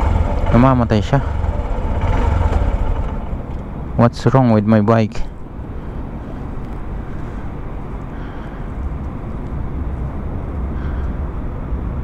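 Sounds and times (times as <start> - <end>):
motorcycle engine idling: 0.0 - 3.9.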